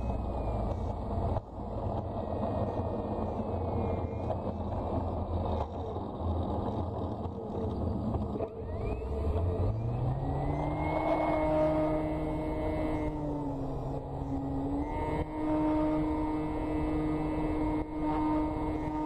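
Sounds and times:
faint motor whine: 0.0 - 19.0
model plane taxiing rumble: 0.0 - 19.0.

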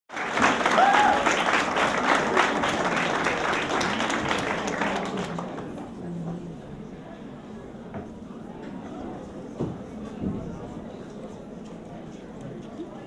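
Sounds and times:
audience applauding: 0.1 - 5.8.

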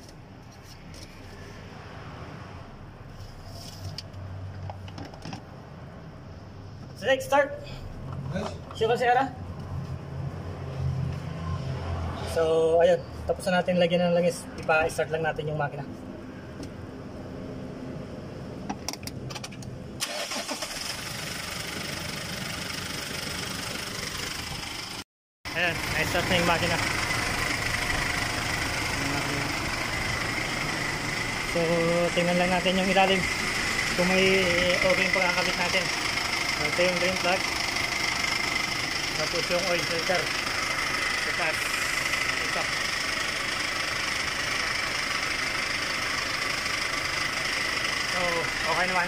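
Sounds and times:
diesel engine idling: 20.0 - 49.0.

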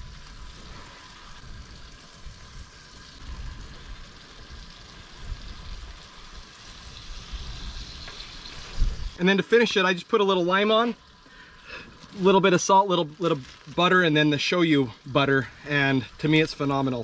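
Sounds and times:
wind rumble on microphone: 0.0 - 9.2
fish sizzling in a pan: 0.0 - 17.0.

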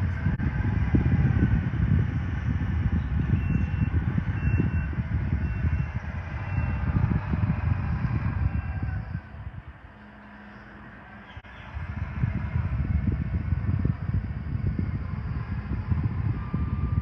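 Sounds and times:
loader diesel engine under load: 0.0 - 17.0
faint backup alarm beeping: 3.0 - 7.6, 12.4 - 17.0.

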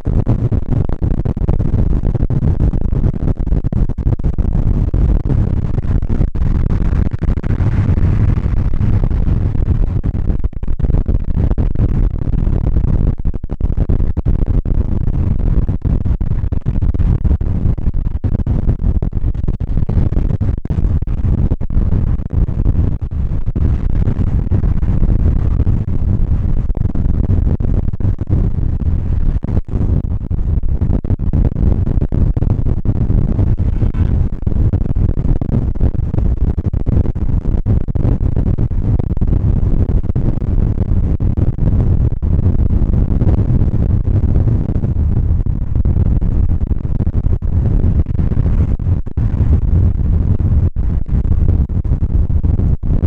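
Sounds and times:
car road and wind noise: 32.8 - 35.1.

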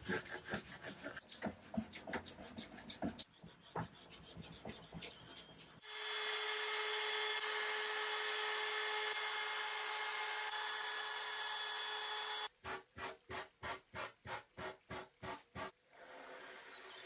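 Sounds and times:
sanding block strokes: 0.0 - 5.9
trim router running: 5.8 - 12.5.

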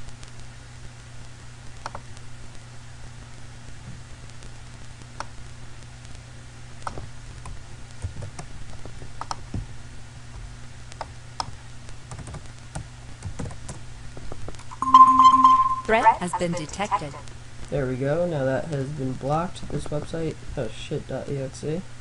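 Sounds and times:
steady low hum: 0.0 - 22.0
keyboard and mouse clicks: 1.8 - 2.0, 6.8 - 9.4, 11.0 - 13.8.

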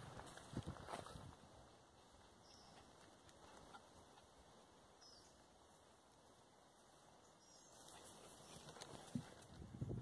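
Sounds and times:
faint outdoor hiss: 0.0 - 10.0
faint high bird chirps: 5.0 - 5.4, 7.2 - 8.6.

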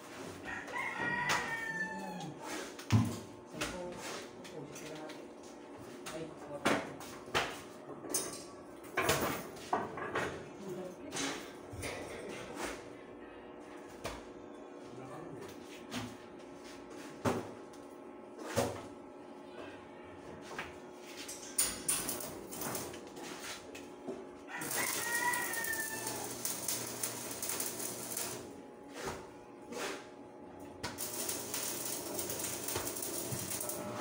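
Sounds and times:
rooster crowing: 0.4 - 2.5, 24.5 - 28.4
welding arc hissing: 21.9 - 23.0, 24.6 - 28.6, 30.9 - 34.0.

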